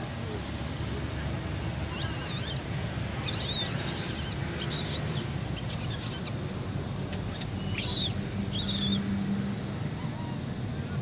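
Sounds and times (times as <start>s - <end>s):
baby monkey squeaking: 1.9s - 6.4s, 7.3s - 9.0s.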